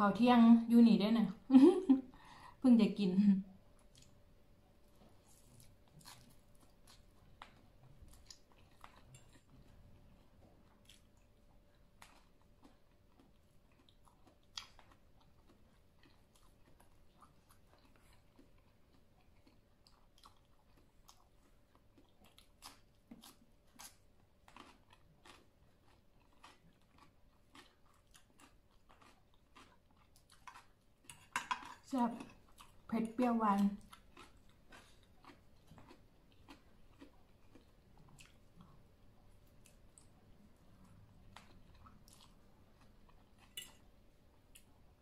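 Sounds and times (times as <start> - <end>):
close-up chewing: 3.7 - 45.0
small crunches: 4.9 - 9.6.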